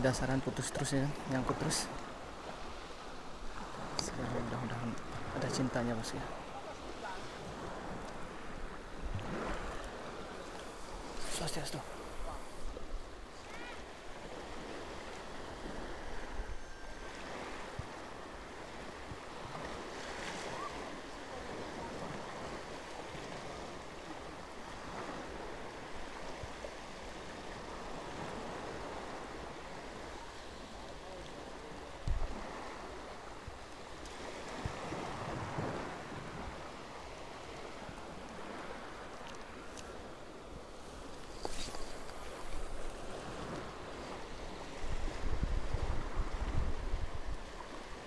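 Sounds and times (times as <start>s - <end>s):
small sea waves lapping: 0.0s - 48.0s
wind on microphone: 6.9s - 30.3s, 32.0s - 39.6s, 40.8s - 48.0s.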